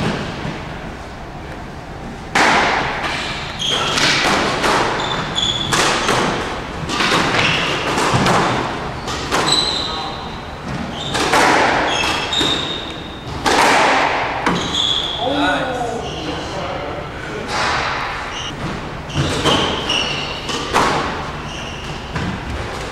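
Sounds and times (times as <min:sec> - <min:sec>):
squash ball hits echoing: 0:02.3 - 0:15.2, 0:17.5 - 0:22.8
shoes squeaking on court floor: 0:03.1 - 0:13.5, 0:14.4 - 0:15.3, 0:15.9 - 0:16.6, 0:18.2 - 0:22.9.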